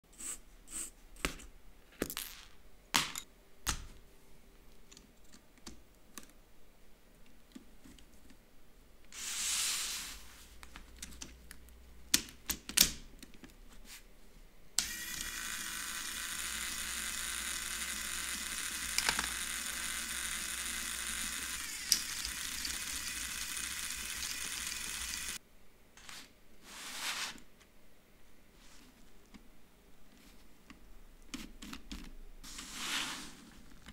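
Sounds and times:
light clicks of plastic parts: 4.7 - 6.4
small electric motor whirring: 14.8 - 25.4.

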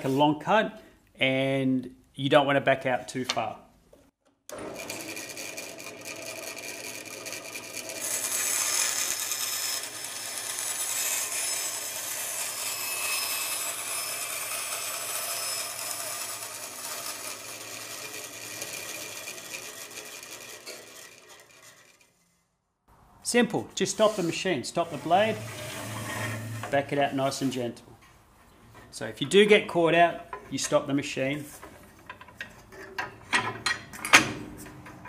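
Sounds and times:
bandsaw motor hum: 4.5 - 22.1, 24.8 - 26.8
saw blade rasping through wood: 5.1 - 22.3, 23.8 - 27.5.

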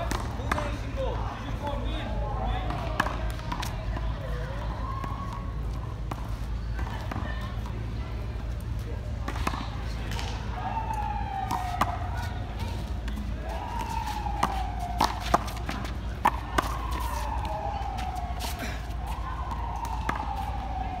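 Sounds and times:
emergency siren wailing: 10.6 - 12.4, 13.4 - 21.0.

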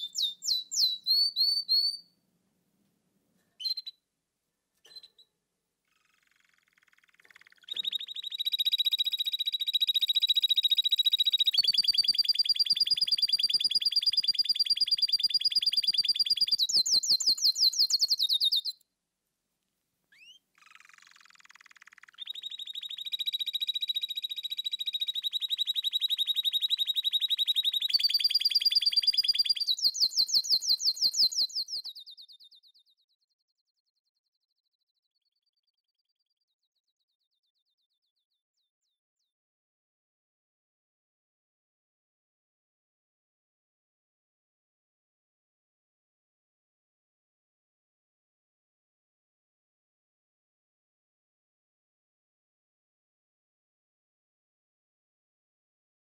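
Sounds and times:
songbird trilling: 0.0 - 2.0, 5.9 - 18.8, 20.2 - 31.9.

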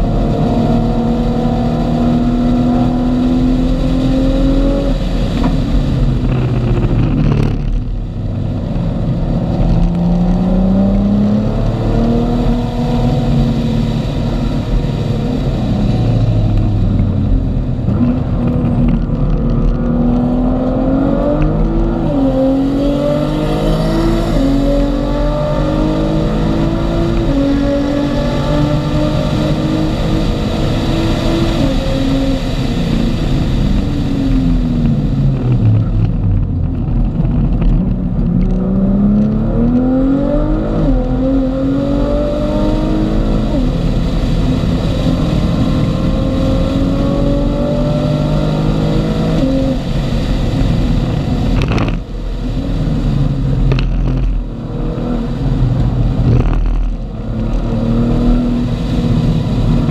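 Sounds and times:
road and wind noise: 0.0 - 59.9
car engine revving from cabin: 52.8 - 59.9.

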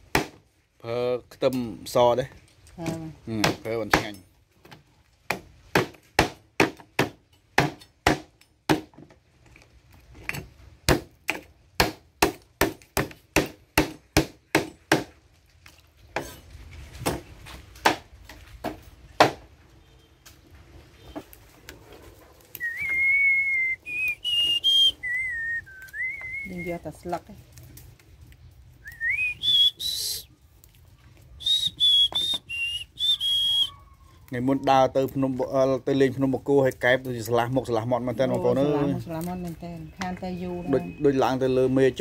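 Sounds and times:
high whistle shifting pitch: 22.6 - 26.7, 28.8 - 30.2, 31.4 - 33.8.

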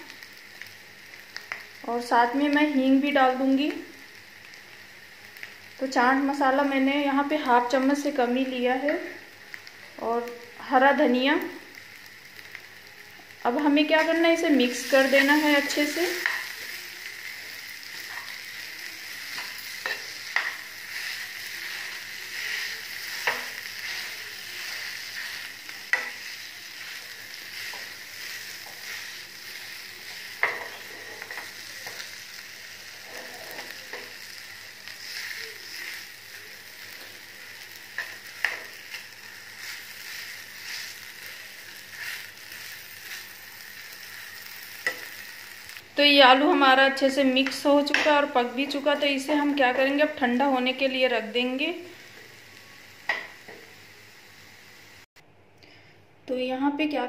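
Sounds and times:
food sizzling in a pan: 0.0 - 55.1
metal spoon scraping a pan: 17.9 - 29.1, 30.1 - 32.1.

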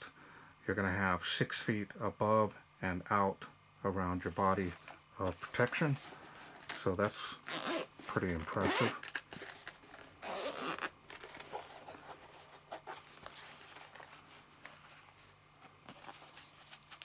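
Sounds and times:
zipper rasp: 7.5 - 7.9, 8.6 - 8.9, 10.2 - 10.9
handling case and packaging: 7.5 - 17.0.

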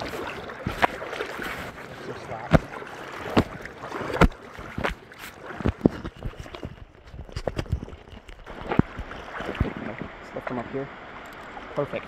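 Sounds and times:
river water rushing: 0.0 - 6.0, 8.4 - 12.0.

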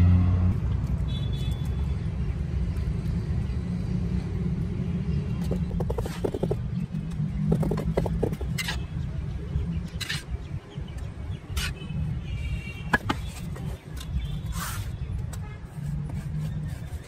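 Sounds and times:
trowel scraping wet concrete: 14.4 - 15.0, 15.6 - 17.0.

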